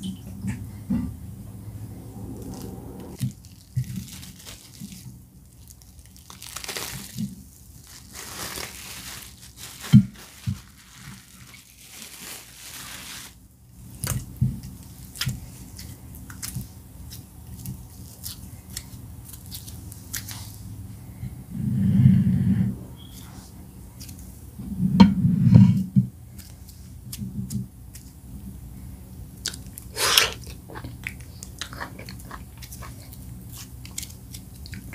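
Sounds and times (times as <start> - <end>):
plastic wrap crinkling and tearing: 3.2 - 20.7.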